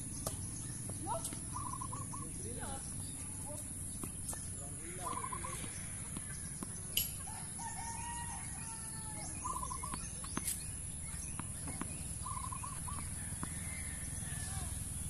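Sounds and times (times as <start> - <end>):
short bird calls: 1.0 - 2.7, 4.8 - 7.3, 11.7 - 14.8
rooster crowing: 7.2 - 9.6, 13.0 - 14.9.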